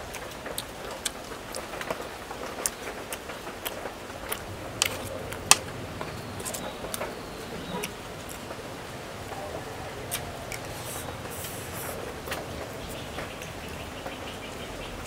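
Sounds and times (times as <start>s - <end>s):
chewing crunches: 0.0s - 8.5s, 10.1s - 12.5s.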